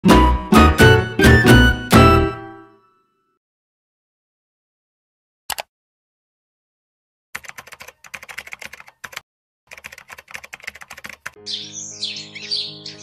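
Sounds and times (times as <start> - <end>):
music: 0.0 - 3.4, 11.4 - 13.0
rapid keyboard typing: 7.4 - 11.4
birds chirping: 11.4 - 13.0.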